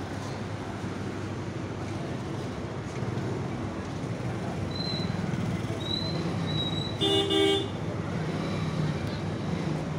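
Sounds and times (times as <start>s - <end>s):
street traffic hum: 0.0s - 9.9s
vehicle horn blast: 7.0s - 7.7s.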